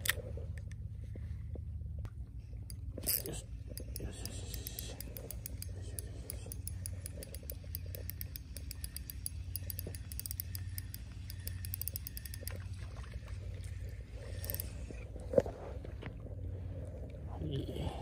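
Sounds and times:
low steady rumble: 0.0s - 18.0s
fishing reel clicking: 2.7s - 12.7s, 13.8s - 14.9s.

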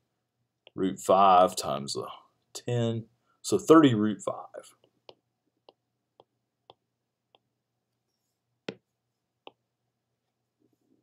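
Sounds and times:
stylus tapping pen tablet: 4.8s - 7.6s, 8.6s - 10.4s.

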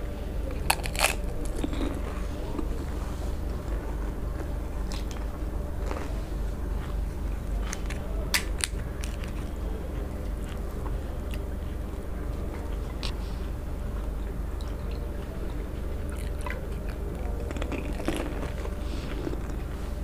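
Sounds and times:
low hum: 0.0s - 20.0s
crisp shells crunching: 0.5s - 2.7s, 7.6s - 9.5s.

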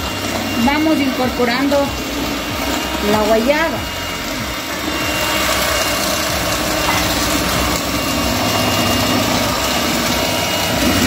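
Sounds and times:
electric hand mixer running: 0.0s - 11.0s
juice being poured: 3.8s - 11.0s.

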